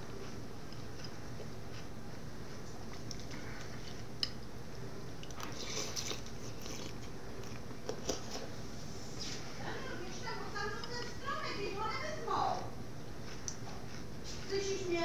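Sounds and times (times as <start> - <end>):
eating and chewing: 0.0 - 8.6, 9.2 - 15.0
steady low hum: 0.0 - 15.0.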